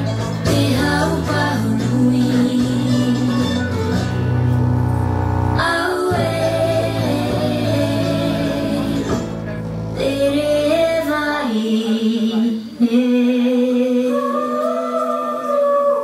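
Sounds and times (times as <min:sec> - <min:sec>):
low musical accompaniment: 0:00.0 - 0:16.0
woman singing long held notes: 0:05.6 - 0:09.2, 0:10.0 - 0:16.0.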